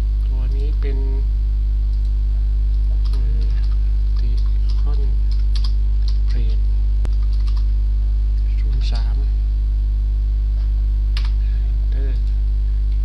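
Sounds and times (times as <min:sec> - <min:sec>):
electrical mains hum: 0:00.0 - 0:13.0
keyboard typing clicks: 0:03.0 - 0:07.7, 0:11.2 - 0:11.4.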